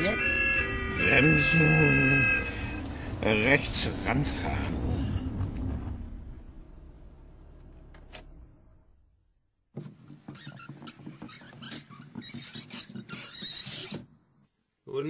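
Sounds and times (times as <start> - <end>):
car engine and road rumble: 0.0 - 9.4
squeaks and knocks: 9.8 - 14.5.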